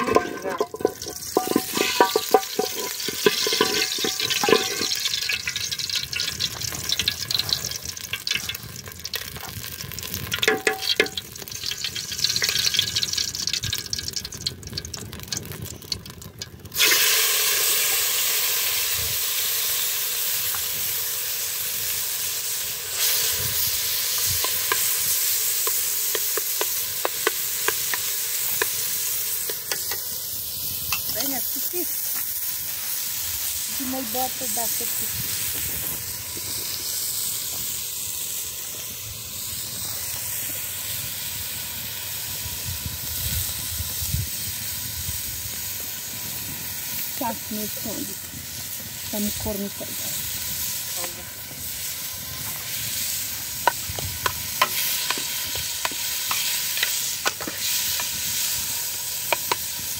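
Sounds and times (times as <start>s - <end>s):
metal utensil scraping in pot: 0.0s - 9.5s
food frying in hot oil: 0.0s - 59.9s.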